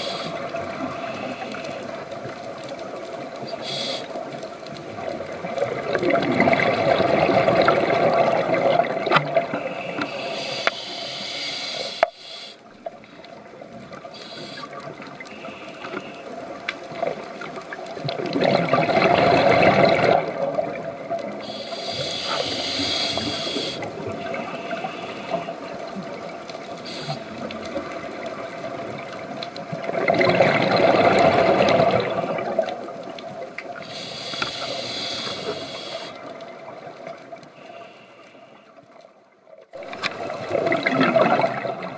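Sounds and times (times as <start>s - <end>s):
regulator inhale hiss: 0.0s - 2.0s, 3.5s - 4.3s, 9.5s - 12.7s, 14.1s - 16.3s, 21.4s - 25.9s, 26.7s - 27.5s, 33.8s - 36.3s, 37.5s - 38.8s
bubbling exhales underwater: 5.6s - 9.6s, 18.1s - 20.9s, 29.8s - 32.9s, 39.8s - 41.9s.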